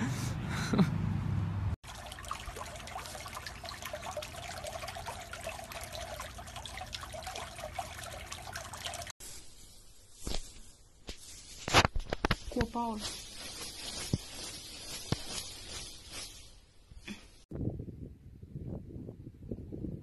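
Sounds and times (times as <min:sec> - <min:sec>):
water trickling and lapping: 0:01.8 - 0:09.3.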